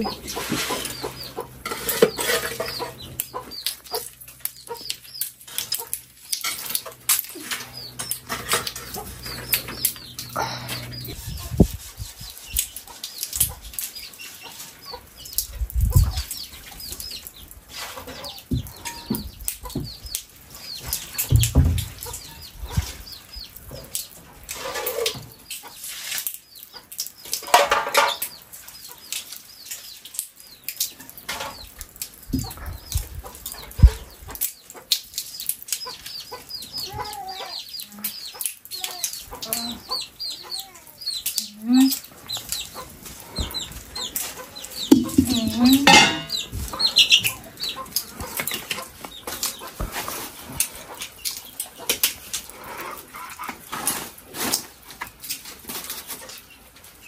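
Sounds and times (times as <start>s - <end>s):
pots and basins clattering: 0.0s - 11.1s, 17.7s - 20.0s, 27.3s - 28.3s, 42.9s - 56.5s
chickens clucking: 0.0s - 57.0s.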